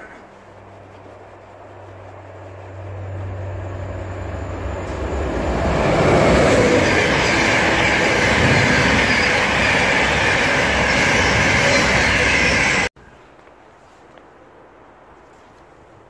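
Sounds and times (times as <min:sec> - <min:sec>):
train passing at speed: 0:00.2 - 0:12.9.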